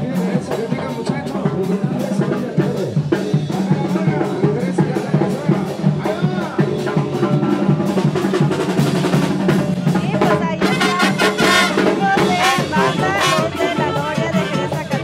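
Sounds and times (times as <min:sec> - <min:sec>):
horns playing wavering melody: 0:10.6 - 0:15.0.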